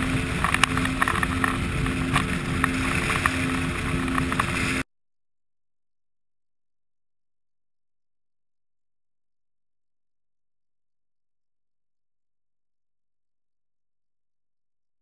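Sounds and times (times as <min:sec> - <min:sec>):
boat engine drone: 0:00.0 - 0:04.8
hull slapping waves: 0:00.0 - 0:04.8
wind buffeting microphone: 0:00.0 - 0:04.8.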